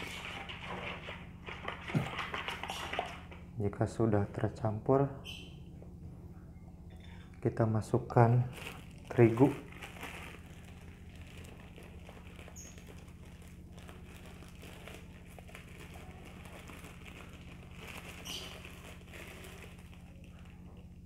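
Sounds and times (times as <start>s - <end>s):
steady low hum: 0.0s - 21.0s
plastic bag crinkling: 8.3s - 21.0s.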